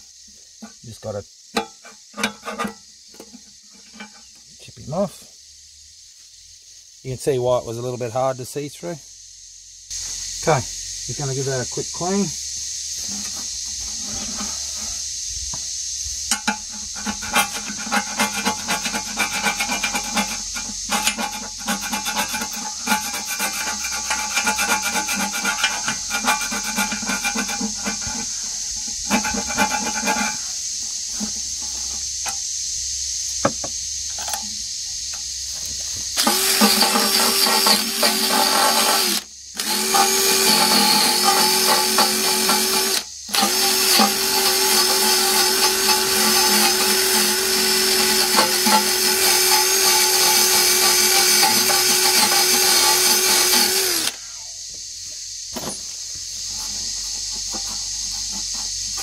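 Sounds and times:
hand scraper scraping steel: 1.6s - 4.4s, 13.0s - 15.0s, 16.3s - 32.4s, 36.2s - 54.2s, 56.5s - 59.0s
cordless drill with wire brush: 17.0s - 30.4s, 36.2s - 54.2s.

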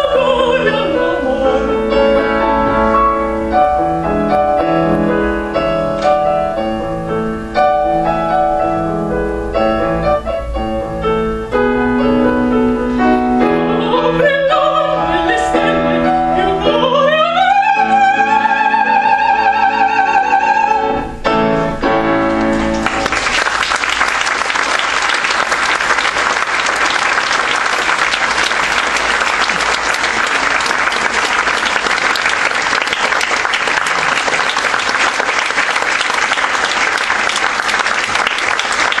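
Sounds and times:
grand piano chords: 0.0s - 39.0s
audience applauding: 22.3s - 39.0s.

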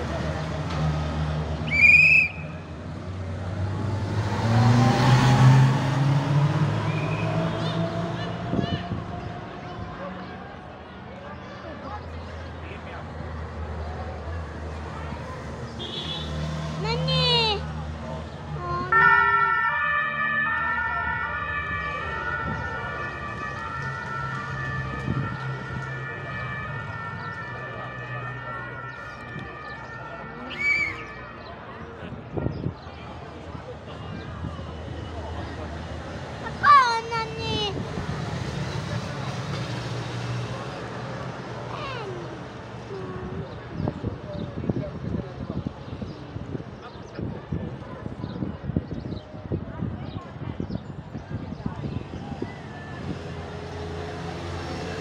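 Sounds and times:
trilling whistle blast: 1.7s - 2.6s, 30.5s - 31.1s
two-tone sirens: 1.7s - 2.7s, 3.5s - 10.2s, 18.8s - 32.4s
car driving past: 3.0s - 9.0s.

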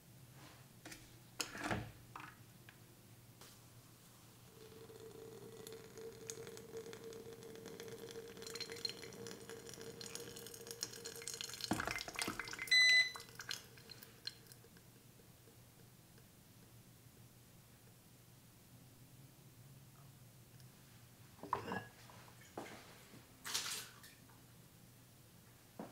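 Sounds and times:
hot water pouring and dripping: 4.4s - 14.8s
short electronic beep: 12.7s - 13.2s.

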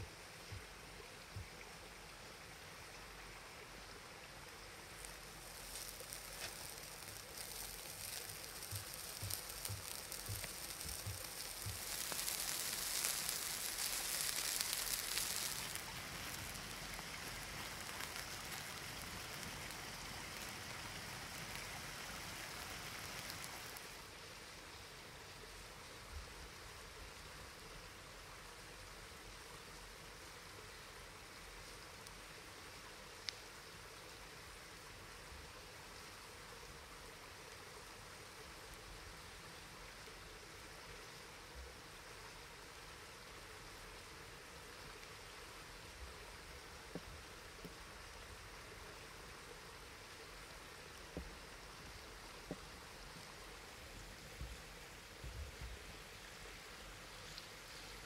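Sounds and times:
food sizzling in a pan: 4.6s - 24.1s
small pops and ticks: 4.9s - 24.0s, 46.9s - 48.2s.

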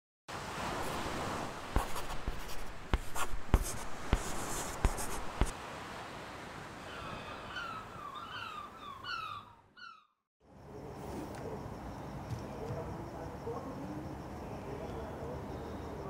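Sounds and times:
pencil taps: 1.8s - 5.5s
pencil writing on paper: 1.8s - 5.5s
bird chirping: 6.9s - 10.2s.

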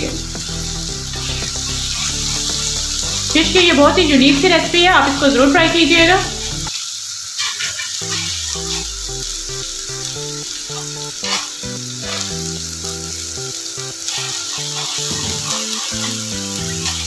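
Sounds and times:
melodic background music: 0.0s - 6.7s, 8.0s - 17.0s
fish sizzling on a griddle: 0.0s - 17.0s
metal spatula scraping: 1.1s - 3.3s, 10.7s - 12.4s, 14.1s - 17.0s.

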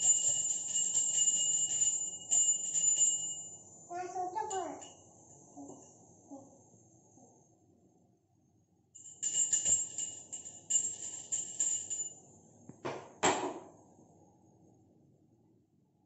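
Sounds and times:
brass hand bell ringing: 0.0s - 3.6s, 9.0s - 12.1s.

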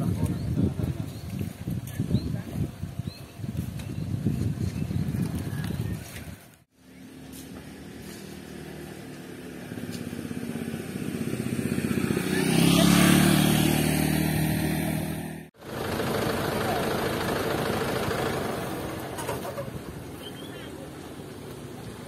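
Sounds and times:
truck diesel engine revving: 7.8s - 20.0s.

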